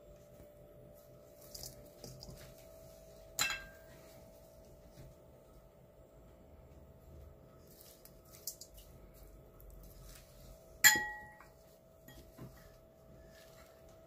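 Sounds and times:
dishes clinking: 0:03.4 - 0:03.9, 0:10.8 - 0:11.5.

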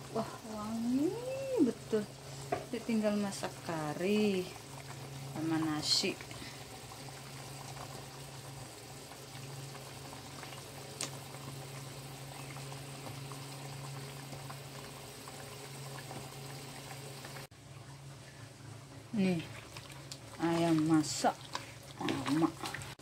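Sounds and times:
constant low hum: 0:00.0 - 0:23.0
gravy bubbling and popping: 0:06.1 - 0:23.0.

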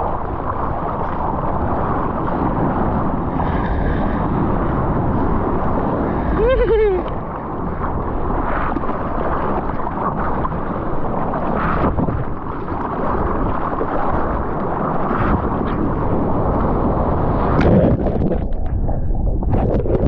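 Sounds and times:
surf water rushing and spraying: 0:00.0 - 0:20.0
wind buffeting microphone: 0:00.0 - 0:20.0
water splash: 0:17.3 - 0:20.0.

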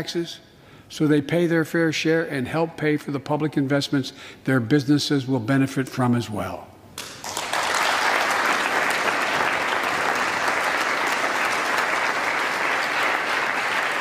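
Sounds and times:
audience clapping: 0:07.0 - 0:14.0.

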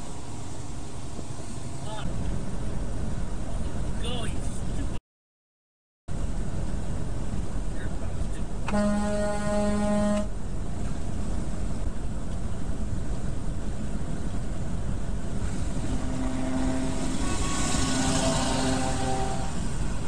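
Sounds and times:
truck road noise at highway speed: 0:00.0 - 0:05.0, 0:06.1 - 0:20.0
truck horn blast: 0:08.7 - 0:10.3, 0:15.8 - 0:19.8.

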